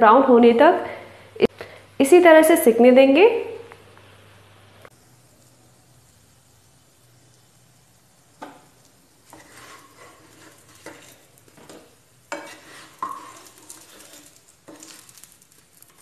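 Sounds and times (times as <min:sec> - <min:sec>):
patties sizzling in oil: 0:01.1 - 0:16.0
wooden spatula scraping pan: 0:08.4 - 0:16.0.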